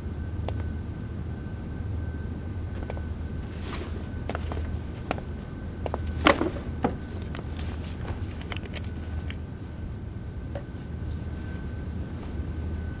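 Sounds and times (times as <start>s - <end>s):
low room hum: 0.0s - 13.0s
backpack being set down: 2.8s - 9.2s
person sitting on folding chair: 2.8s - 9.4s.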